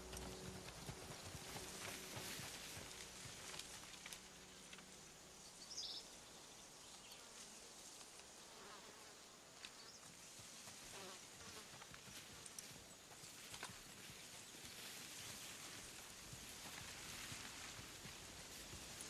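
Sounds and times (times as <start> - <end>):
flies buzzing: 0.0 - 6.2.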